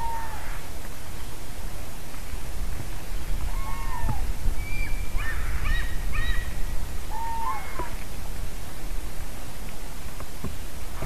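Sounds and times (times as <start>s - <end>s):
cranes trumpeting calls: 3.5s - 8.0s.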